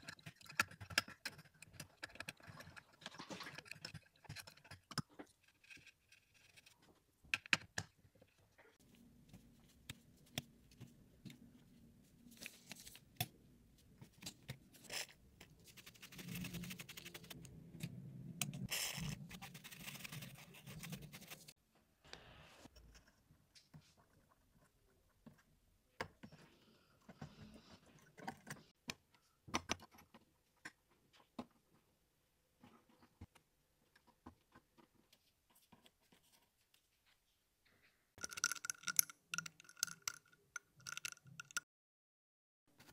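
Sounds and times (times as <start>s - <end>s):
bristle brush sweeping: 18.6s - 21.6s.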